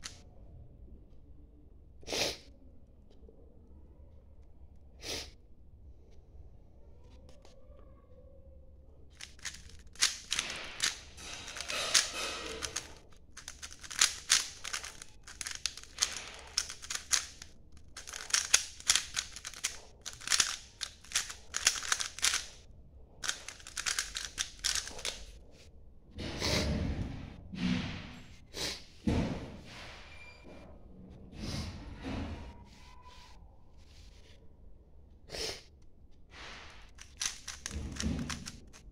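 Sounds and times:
puzzle cube layers clicking: 9.2 - 22.6, 23.2 - 25.3, 36.9 - 38.9.

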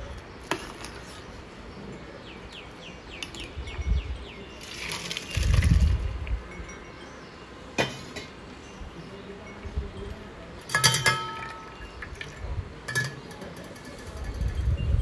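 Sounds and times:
metal strainer clinking against bowl: 10.6 - 14.7.

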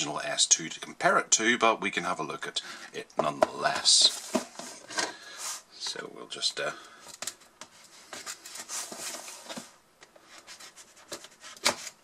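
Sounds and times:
box rubbing: 8.1 - 12.0.

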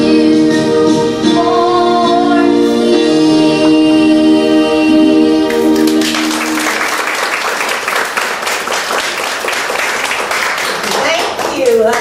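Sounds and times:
girl singing: 0.0 - 6.0
musical accompaniment: 0.0 - 8.2
audience applause: 5.6 - 12.0.

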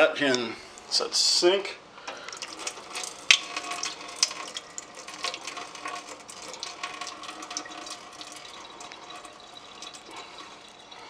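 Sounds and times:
liquid pouring into metal bowl: 2.2 - 11.0.

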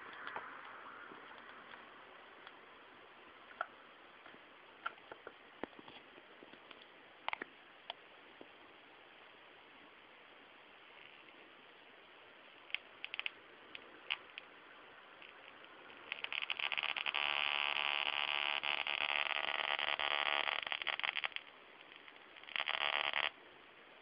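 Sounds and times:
sharp electric snaps: 0.0 - 1.8, 12.6 - 23.4
electric sparks crackling: 12.6 - 14.5, 15.1 - 23.4.

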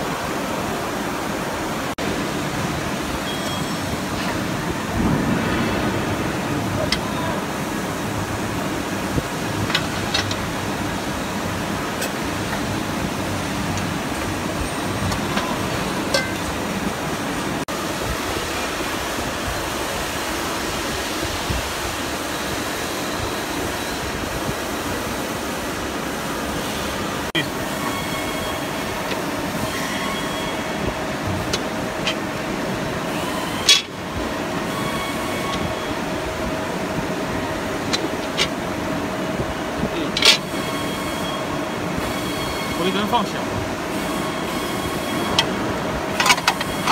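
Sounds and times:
sharp metal clanks: 15.0 - 16.6.

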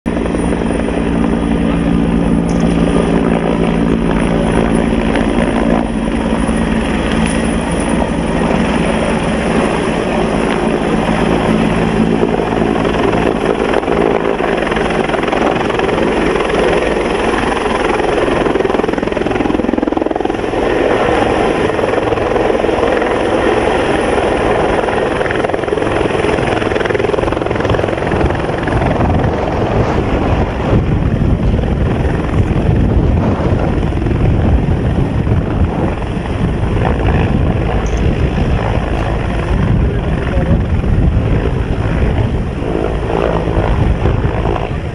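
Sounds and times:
helicopter rotor and turbines: 0.0 - 44.9
deep low rumble: 28.1 - 44.9.

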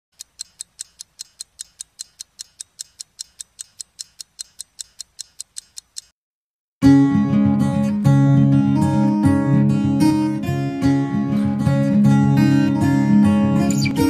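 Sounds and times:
clock ticking: 0.1 - 6.2.

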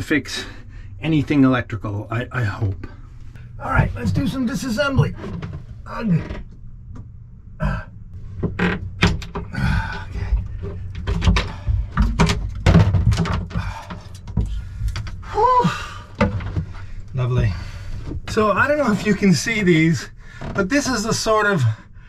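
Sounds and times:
wooden locker door handled: 8.4 - 15.2.

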